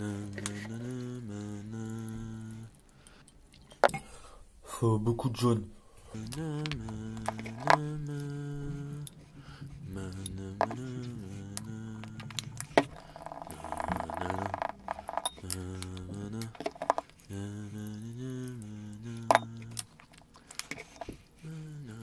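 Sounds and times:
man humming: 0.0 - 2.8, 6.1 - 20.0, 21.4 - 22.0
paintbrush scraping a bowl: 12.5 - 15.4, 16.5 - 17.3, 20.7 - 21.4.

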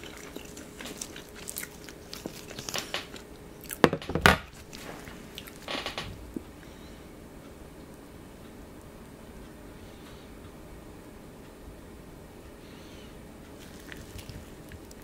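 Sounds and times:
crisp crunching of pastry being chewed: 0.0 - 3.9, 13.5 - 15.0.

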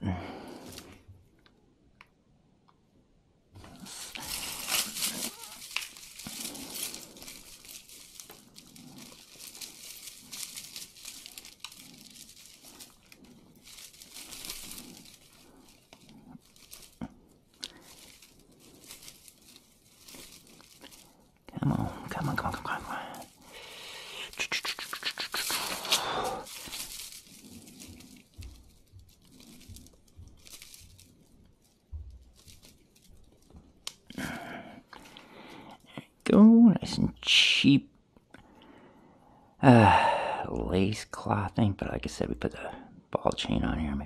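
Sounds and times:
hands rummaging through jewelry: 3.6 - 36.2.

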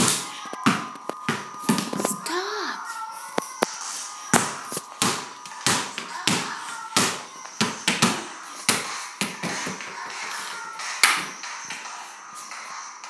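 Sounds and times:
basketball bouncing: 0.0 - 2.0, 4.3 - 10.0.

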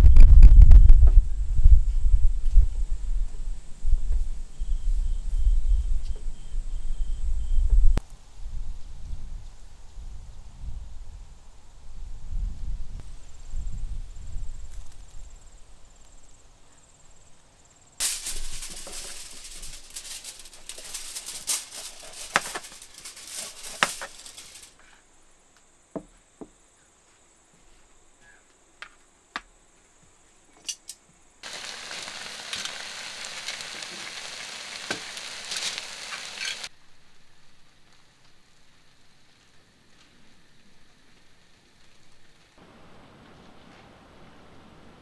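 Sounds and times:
food sizzling on grill plate: 18.0 - 24.7, 31.4 - 36.7.

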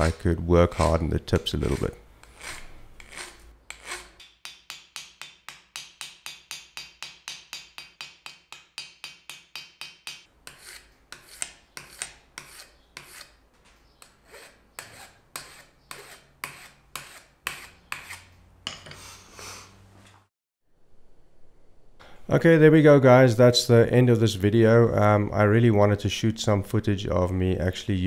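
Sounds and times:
hand file scraping metal: 0.7 - 6.8, 10.2 - 19.2.

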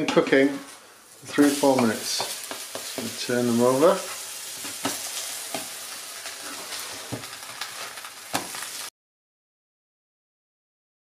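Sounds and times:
pancakes sizzling in a pan: 0.6 - 8.9
spatula knocking and scraping: 1.7 - 3.2, 4.1 - 5.8, 6.4 - 8.6.

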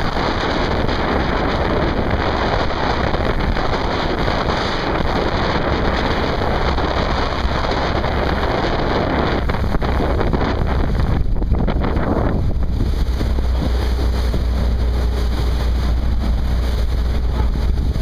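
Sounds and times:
low rumble: 0.0 - 18.0
water rushing along boat hull: 0.0 - 18.0
wind on microphone: 0.0 - 18.0.

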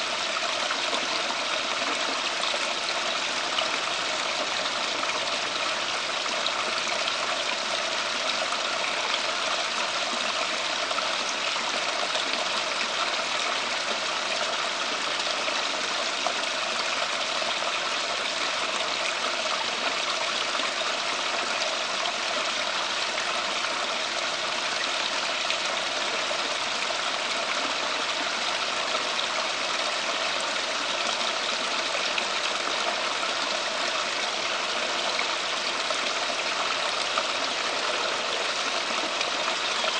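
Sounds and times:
water running and splashing: 0.0 - 39.9.

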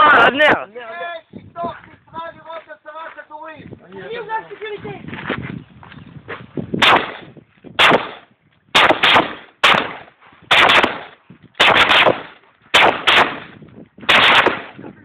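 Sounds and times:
rifle shots with echo: 6.8 - 14.8.

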